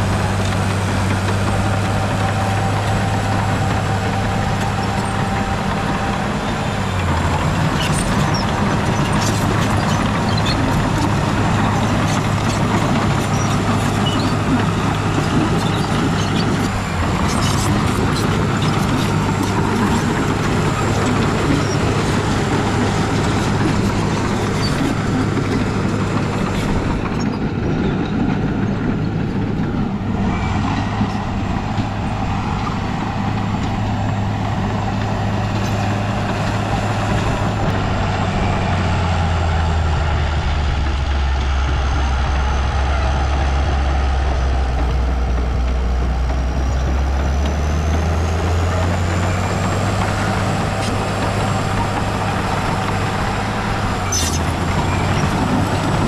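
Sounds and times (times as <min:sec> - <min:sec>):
heavy diesel engine under load: 0:00.0 - 0:56.0.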